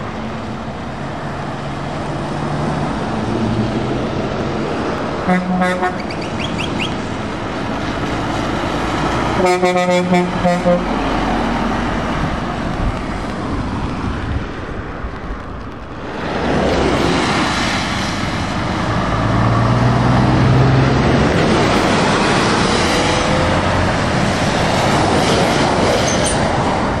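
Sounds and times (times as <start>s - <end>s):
heavy diesel engines: 0.0s - 27.0s
tyres hissing on wet tarmac: 10.0s - 19.6s.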